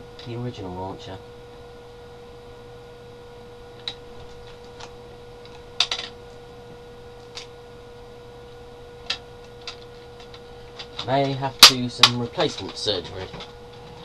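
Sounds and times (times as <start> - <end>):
faint hum: 0.0 - 14.0.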